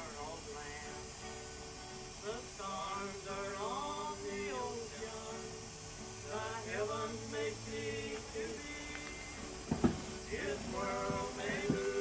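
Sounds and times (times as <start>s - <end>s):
man singing: 0.0s - 1.4s, 2.2s - 9.6s, 10.2s - 12.0s.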